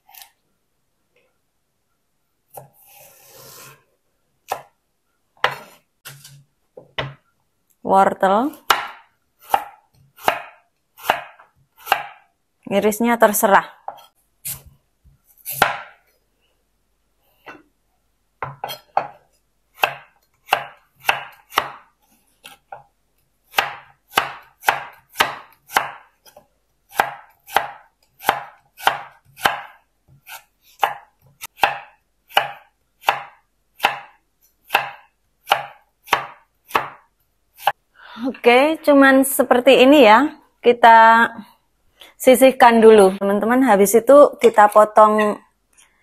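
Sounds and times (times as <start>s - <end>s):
knife slicing carrot on wooden board: 2.5s - 3.7s, 5.4s - 6.4s, 8.7s - 12.2s, 13.9s - 16.0s, 18.4s - 22.9s, 23.5s - 37.0s.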